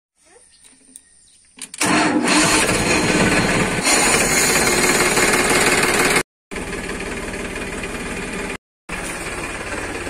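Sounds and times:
tractor diesel engine knocking: 5.0s - 10.0s.

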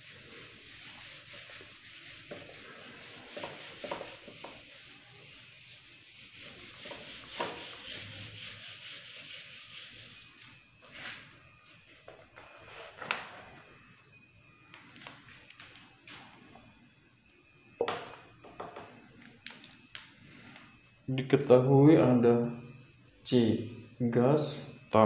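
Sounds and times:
eraser wiping a whiteboard: 0.0s - 11.4s.

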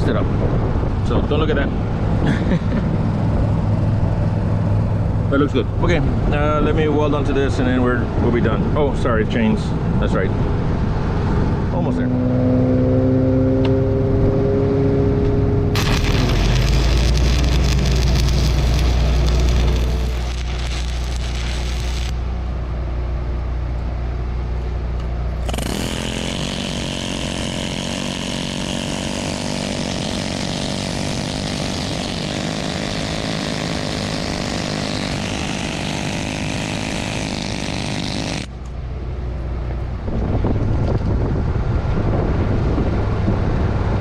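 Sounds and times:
engine running: 0.0s - 44.0s
welding arc crackling and hissing: 15.7s - 22.3s, 25.4s - 38.5s.

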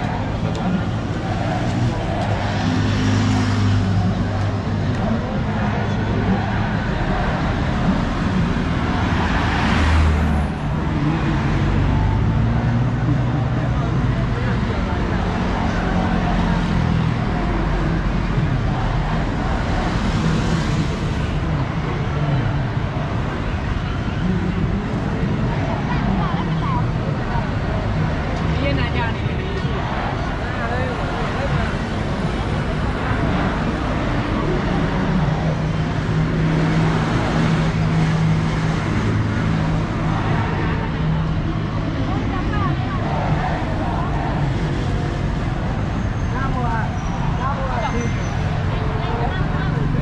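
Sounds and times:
cars passing: 0.0s - 50.0s.

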